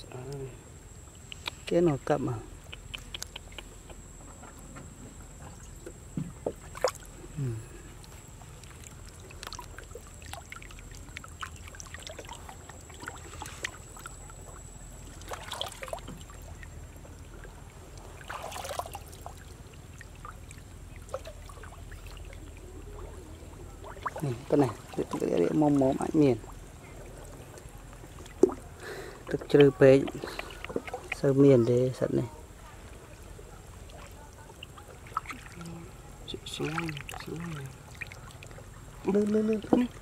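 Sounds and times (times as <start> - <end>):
pond water sloshing: 0.0 - 40.0
loud splashes: 18.2 - 19.4.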